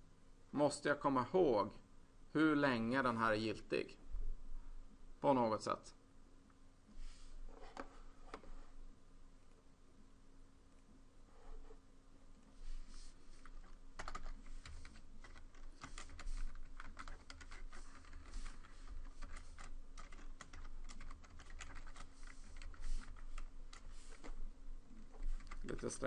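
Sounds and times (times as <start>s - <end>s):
computer keyboard typing: 13.4s - 24.4s, 25.0s - 26.0s.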